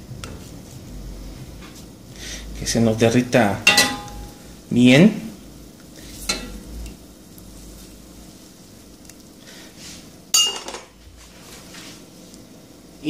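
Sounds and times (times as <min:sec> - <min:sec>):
butter sizzling: 0:03.0 - 0:09.4
utensil knocking on metal pot: 0:03.7 - 0:04.4.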